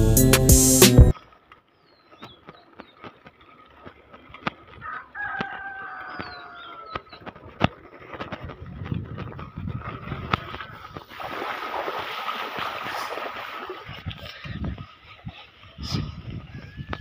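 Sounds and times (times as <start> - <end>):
bike rolling over gravel: 1.1 - 14.1
tyres hissing through puddles: 11.0 - 13.9.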